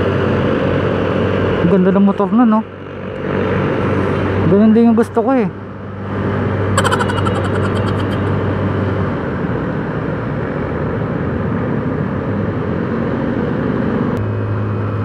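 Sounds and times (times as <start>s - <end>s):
road noise: 2.7s - 15.0s
scooter engine humming: 6.8s - 8.6s.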